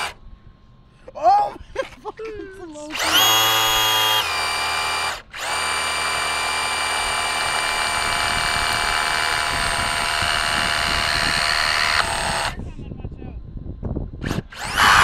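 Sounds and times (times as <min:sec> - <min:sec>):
electric motor high whine: 0:00.0 - 0:00.2, 0:02.8 - 0:12.6, 0:14.2 - 0:15.0
tire spinning on asphalt: 0:14.4 - 0:15.0.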